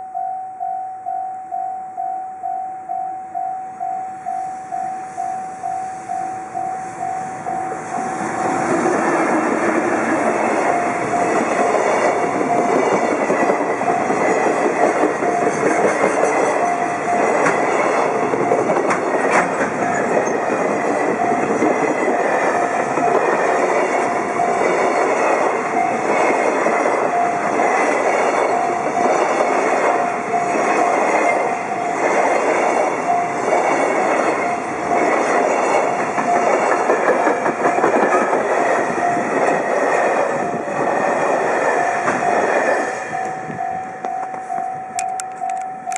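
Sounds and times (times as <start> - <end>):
crossing warning bell dinging: 0.0 - 45.9
train wheels clacking over rail joints: 8.0 - 43.1.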